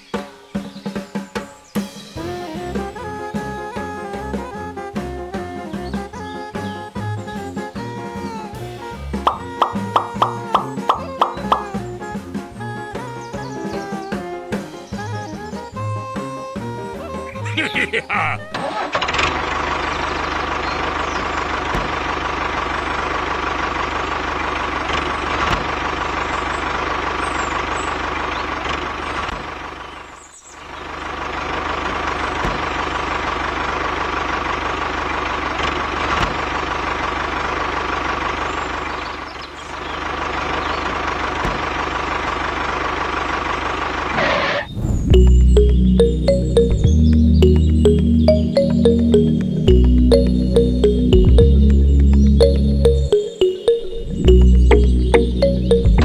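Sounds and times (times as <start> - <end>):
tractor engine running: 18.7 - 30.0, 30.8 - 44.1.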